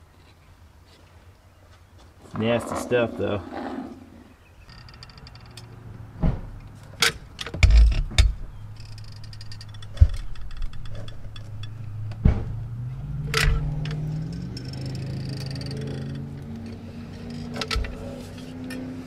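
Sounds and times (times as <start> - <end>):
steady low hum: 7.6 - 19.0.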